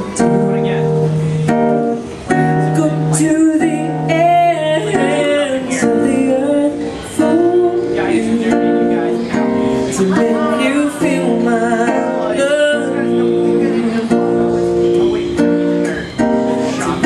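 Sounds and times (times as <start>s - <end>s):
acoustic guitar chords: 0.0s - 17.0s
woman singing: 2.6s - 14.2s.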